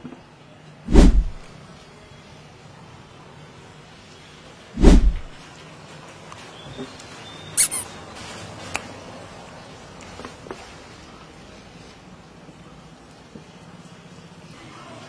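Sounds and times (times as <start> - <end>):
short hiss: 7.6 - 7.9
squeeze bottle spluttering: 7.6 - 7.9.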